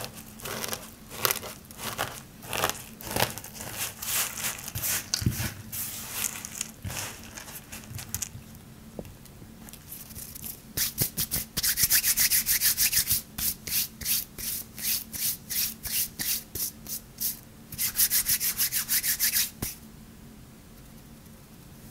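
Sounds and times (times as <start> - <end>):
hands crushing soap shavings: 0.0 - 8.3
scratchy rubbing of soap flakes: 0.0 - 8.3, 9.9 - 19.8.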